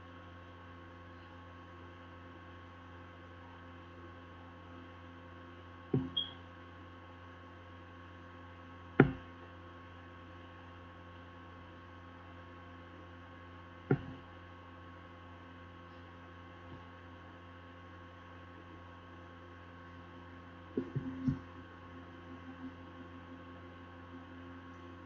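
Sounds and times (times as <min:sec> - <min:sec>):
electrical mains hum: 0:00.0 - 0:25.0
sharp knocks: 0:06.0 - 0:06.2, 0:09.0 - 0:09.2, 0:13.9 - 0:14.2.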